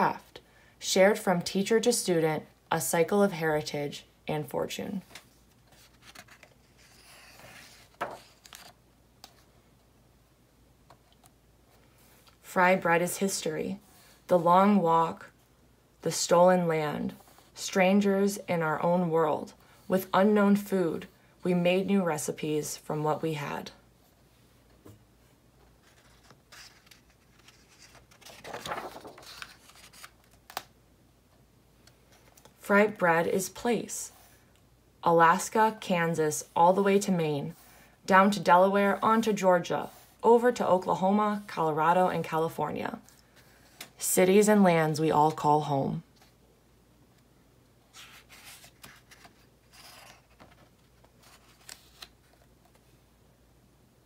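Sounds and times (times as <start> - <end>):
book page rustling: 5.0 - 9.5, 25.7 - 30.7, 47.9 - 52.9.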